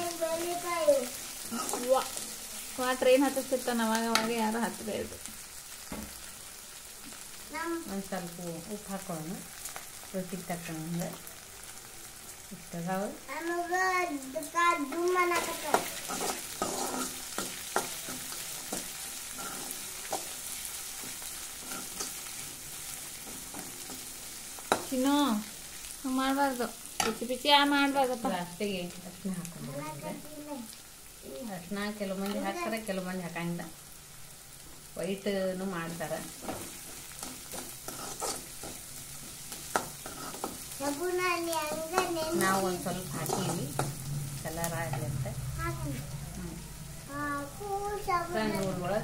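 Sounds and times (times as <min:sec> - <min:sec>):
spoon stirring and scraping pan: 0:00.0 - 0:04.9, 0:14.7 - 0:26.0, 0:26.8 - 0:28.4, 0:35.8 - 0:45.1
food frying in oil: 0:00.0 - 0:49.0
steel spoon scraping pan: 0:15.4 - 0:20.4, 0:21.0 - 0:22.3, 0:36.4 - 0:38.9, 0:39.7 - 0:40.7.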